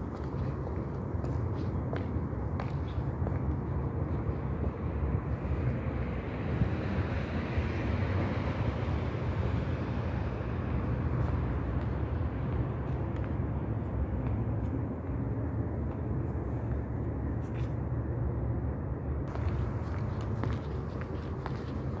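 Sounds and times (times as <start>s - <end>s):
low outdoor rumble: 9.0s - 22.0s.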